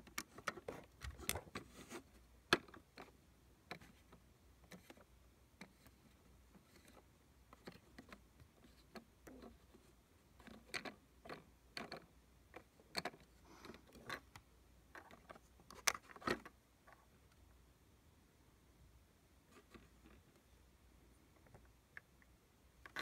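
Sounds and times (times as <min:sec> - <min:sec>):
plastic toy parts clicking: 0:05.6 - 0:16.5, 0:22.8 - 0:23.0.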